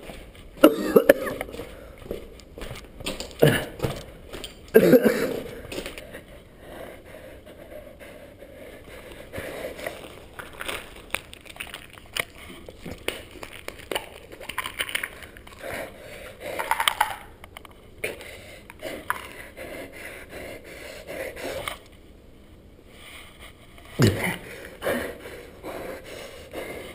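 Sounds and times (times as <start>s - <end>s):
footsteps on gritty concrete: 0.0s - 6.2s
pill bottle rattling: 16.6s - 17.3s.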